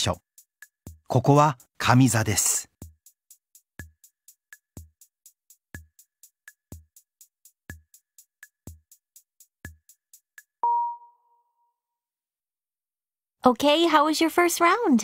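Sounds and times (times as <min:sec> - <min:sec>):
timer beep: 0:10.6 - 0:11.3.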